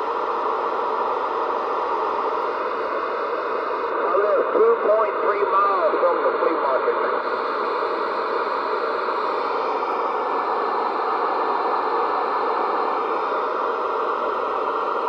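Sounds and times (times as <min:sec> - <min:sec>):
radio static hiss: 0:00.0 - 0:15.0.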